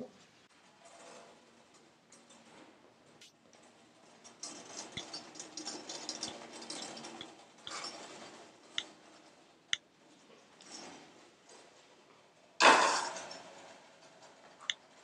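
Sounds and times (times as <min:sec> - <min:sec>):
teapots and jugs rattling on tray: 0:04.2 - 0:09.6.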